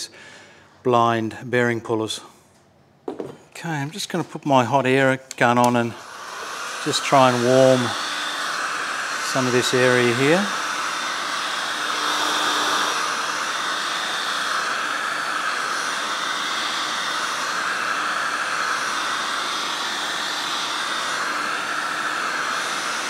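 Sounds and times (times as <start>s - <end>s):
hot air gun blowing: 5.6s - 23.0s.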